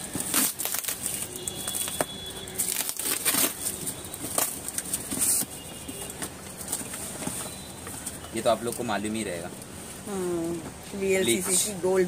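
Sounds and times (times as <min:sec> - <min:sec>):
packing tape ripping: 0:00.0 - 0:06.9
plastic packaging rustling: 0:00.0 - 0:10.0.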